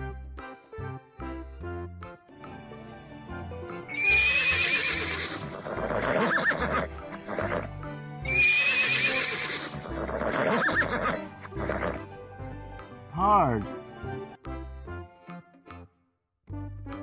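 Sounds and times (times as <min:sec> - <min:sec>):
cheerful children's music: 0:00.0 - 0:17.0
zebra whinnying call: 0:03.9 - 0:07.6, 0:08.3 - 0:11.2.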